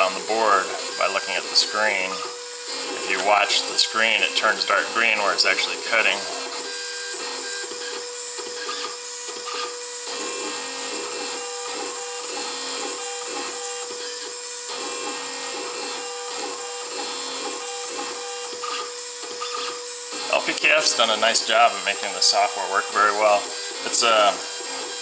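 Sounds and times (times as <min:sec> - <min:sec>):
milling machine spindle hum: 0:00.0 - 0:25.0
bit scraping circuit board: 0:00.1 - 0:06.8, 0:19.5 - 0:24.6.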